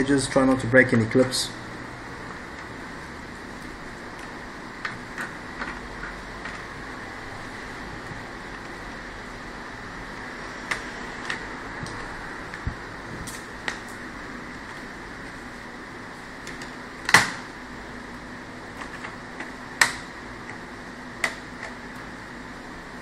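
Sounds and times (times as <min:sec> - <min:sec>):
plastic clips snapping: 0:18.8 - 0:20.6.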